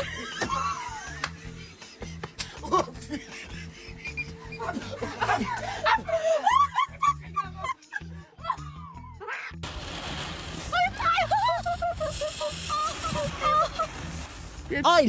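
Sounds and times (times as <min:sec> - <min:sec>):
group of people laughing: 0:00.0 - 0:08.8
background music: 0:00.0 - 0:15.0.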